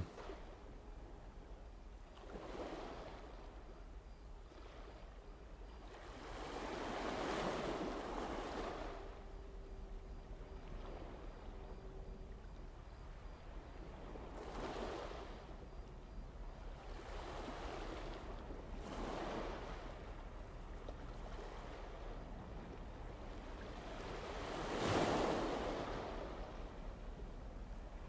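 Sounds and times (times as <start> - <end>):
sea waves washing in: 5.8 - 15.8, 16.4 - 28.0.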